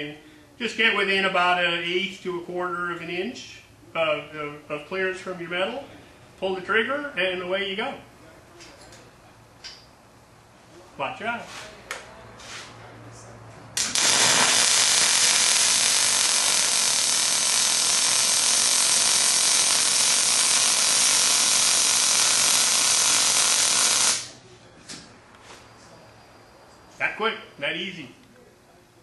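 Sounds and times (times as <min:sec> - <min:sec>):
welding arc crackling hiss: 0:13.8 - 0:24.4.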